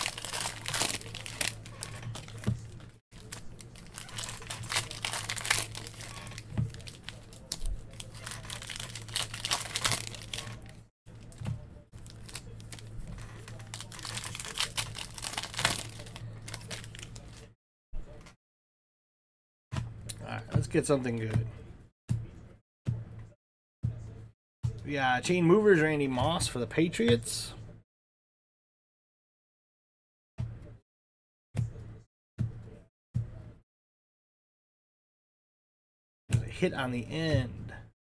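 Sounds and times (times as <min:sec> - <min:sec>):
foil wrappers tearing and crinkling: 0:00.0 - 0:11.4, 0:12.0 - 0:17.5.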